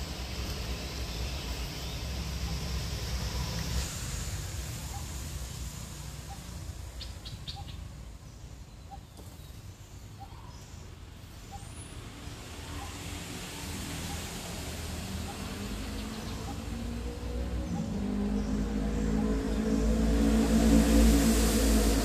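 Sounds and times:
low rumble: 14.0 - 22.0.

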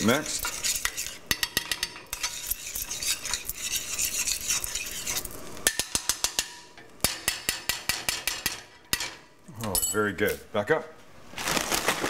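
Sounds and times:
metal spoon scraping saucepan: 0.0 - 6.4.

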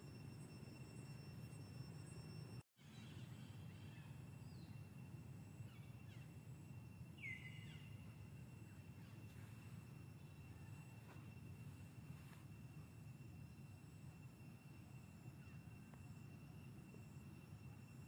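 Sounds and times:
faint bird chirps: 1.9 - 12.4.

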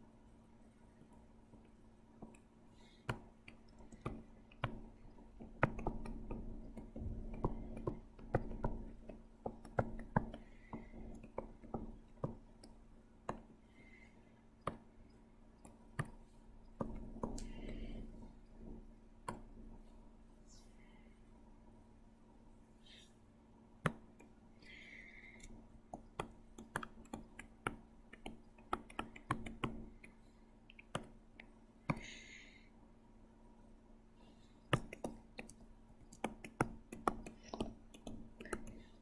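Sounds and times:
steady low hum: 0.0 - 39.0
clicks and taps at a computer: 1.0 - 13.6, 14.6 - 19.7, 23.8 - 24.4, 25.2 - 32.2, 34.7 - 39.0.

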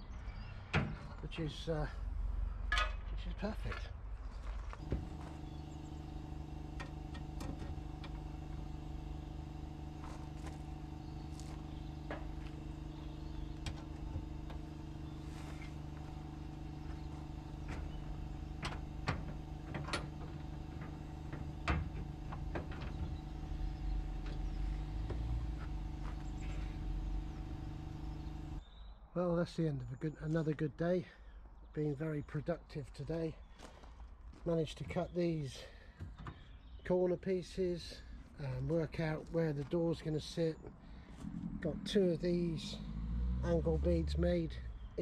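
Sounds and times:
machine hum: 4.7 - 28.6, 40.2 - 44.7.

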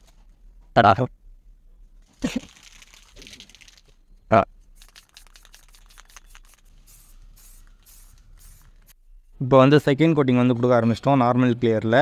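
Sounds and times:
spray can rattling and hissing: 2.2 - 3.9, 4.7 - 9.0.

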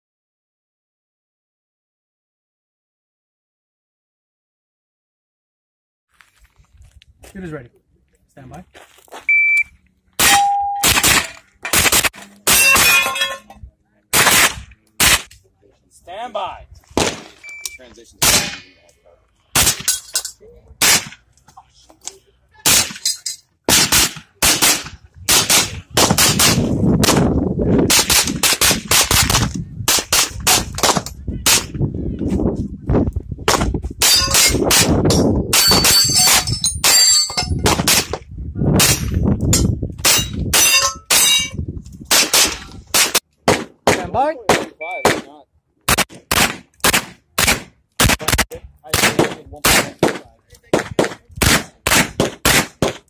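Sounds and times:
metallic ringing: 10.2 - 10.9, 40.2 - 41.6
rapid gunshots: 10.2 - 12.6, 14.1 - 15.3, 23.7 - 27.3, 45.9 - 53.0.

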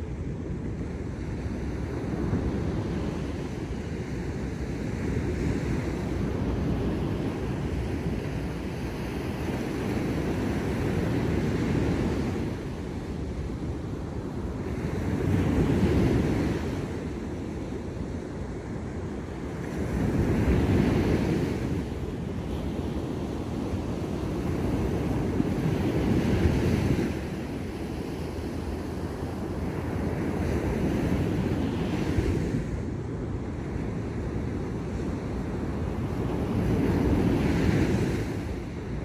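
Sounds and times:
waves breaking on beach: 0.0 - 39.0.

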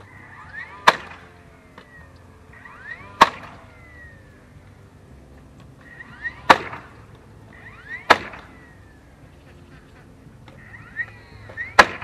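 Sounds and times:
hammer striking wooden fence: 0.8 - 1.2, 2.6 - 3.6, 6.5 - 7.1, 8.0 - 8.6, 11.5 - 12.0.

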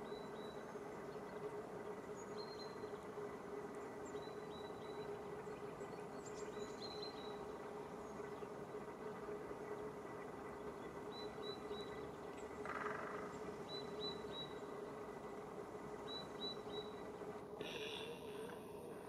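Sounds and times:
low steady hum: 0.0 - 19.0
background hiss: 7.4 - 19.0.

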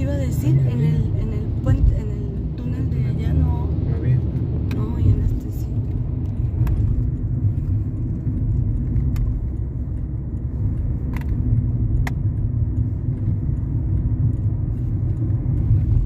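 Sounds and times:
car cabin road rumble: 0.0 - 16.0
sharp clicks: 4.4 - 16.0.

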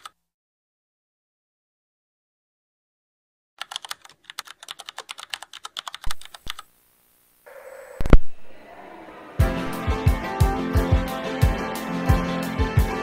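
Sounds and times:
keyboard typing clicks: 3.6 - 6.7.

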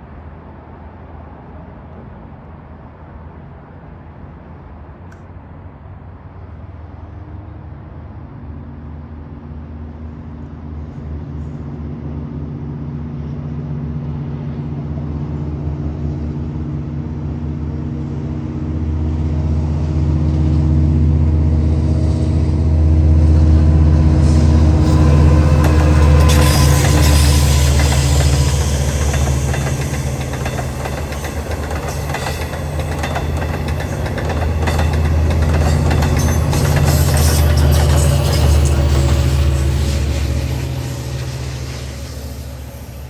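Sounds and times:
diesel locomotive engine hum: 0.0 - 43.0
wheels hissing on rail: 15.8 - 43.0.

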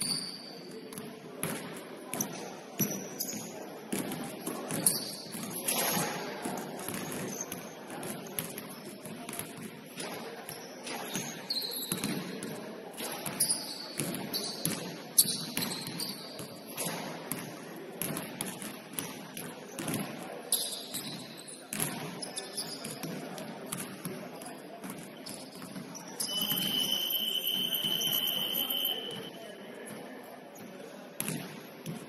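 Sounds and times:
sneaker squeaks: 0.0 - 1.0, 2.1 - 8.6, 10.4 - 12.4, 13.0 - 17.4, 20.5 - 23.2, 24.9 - 30.0
basketball bouncing on gym floor: 0.1 - 24.2.

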